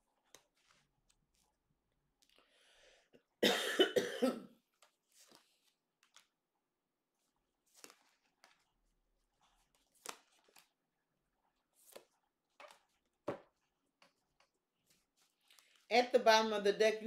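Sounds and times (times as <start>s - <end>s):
woman coughing: 3.4s - 4.6s
cards tapping: 11.8s - 14.5s.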